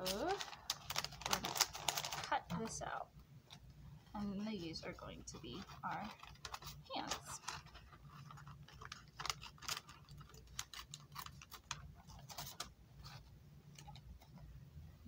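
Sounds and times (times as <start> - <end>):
scissors cutting paper bag: 0.0 - 2.7, 5.2 - 12.7.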